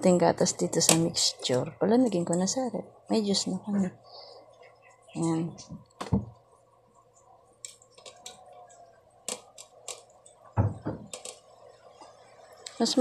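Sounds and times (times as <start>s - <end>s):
dull thump: 10.6s - 11.1s.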